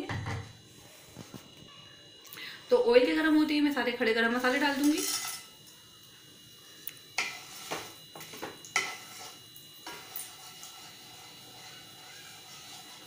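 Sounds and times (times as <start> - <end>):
wooden spatula scraping pan: 7.2 - 13.0.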